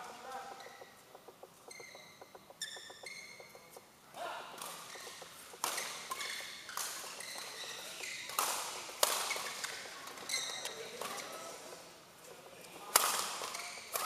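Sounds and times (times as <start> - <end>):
court shoes squeaking: 0.0 - 4.0, 4.6 - 14.0
racket hitting shuttlecock: 4.6 - 10.3, 12.9 - 14.0.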